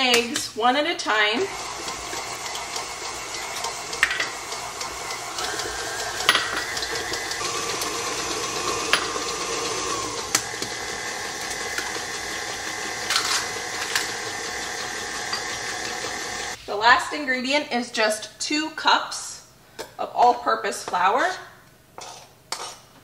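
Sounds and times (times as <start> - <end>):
stand mixer running: 1.4 - 16.6.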